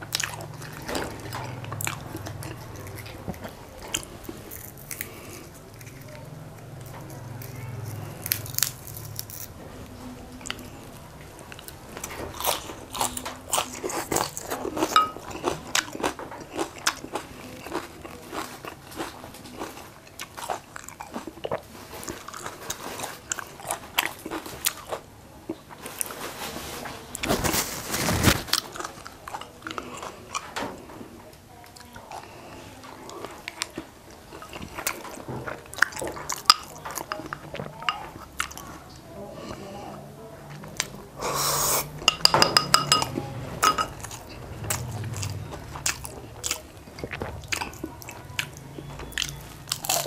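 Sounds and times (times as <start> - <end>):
crisp biting and chewing: 0.1 - 9.6, 44.1 - 50.0.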